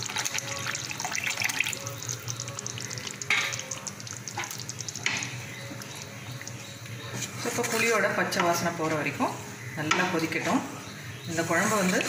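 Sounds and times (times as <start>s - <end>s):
liquid poured into hot curry: 0.0s - 7.0s
curry splashing and crackling: 0.0s - 7.8s
curry bubbling: 0.0s - 8.2s.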